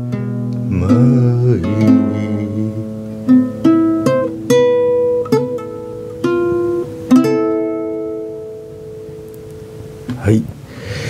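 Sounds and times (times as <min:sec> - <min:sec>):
acoustic guitar plucked notes: 0:00.0 - 0:10.6.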